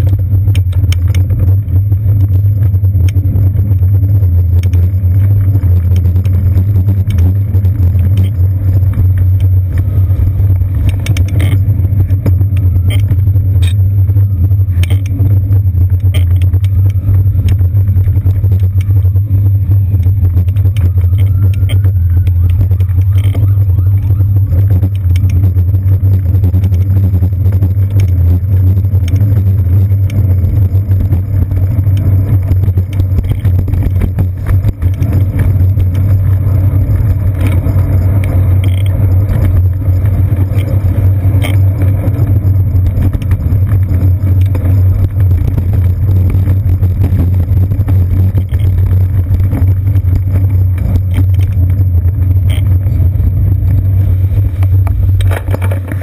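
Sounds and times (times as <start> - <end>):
bike rattles and clicks: 0.0 - 56.0
low rumble of bicycle riding: 0.0 - 56.0.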